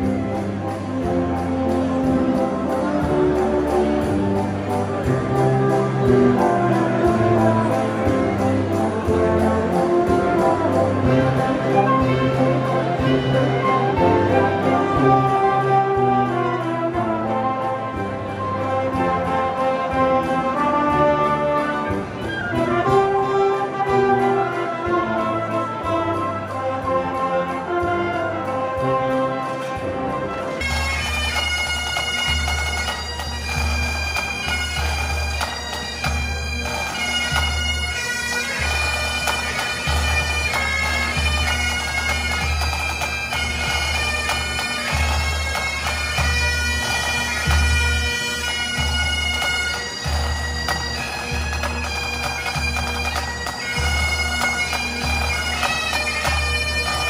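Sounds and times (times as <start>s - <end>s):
brass band playing: 0.0s - 57.0s
bagpipes over a drone: 30.6s - 57.0s.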